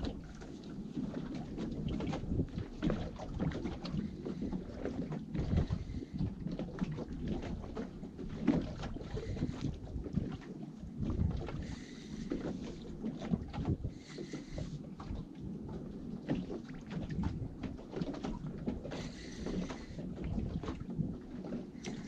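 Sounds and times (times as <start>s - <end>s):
water slapping against boat hull: 0.0s - 22.0s
wind buffeting microphone: 0.0s - 22.0s.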